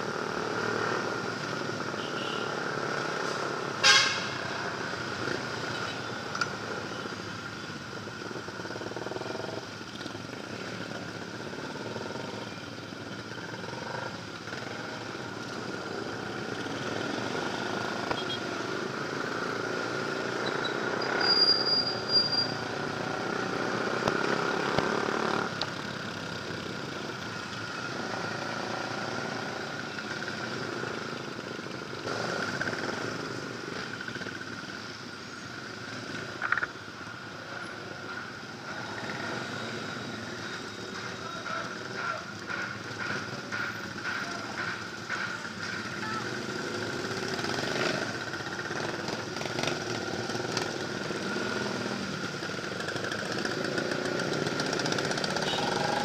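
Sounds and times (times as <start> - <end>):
wind and road noise: 0.0 - 56.0
motorcycle engine revving: 22.4 - 31.4, 38.0 - 56.0.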